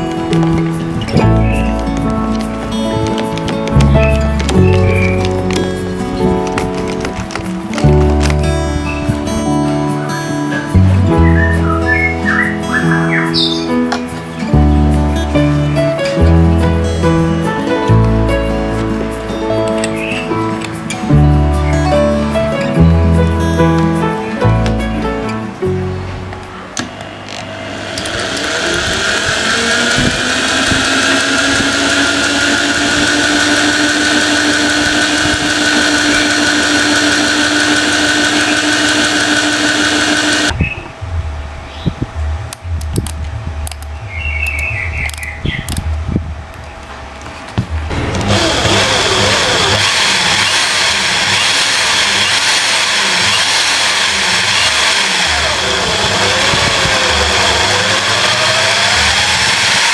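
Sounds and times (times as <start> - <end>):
electric drill whining: 0.0 - 9.4, 26.8 - 40.6, 47.9 - 59.9.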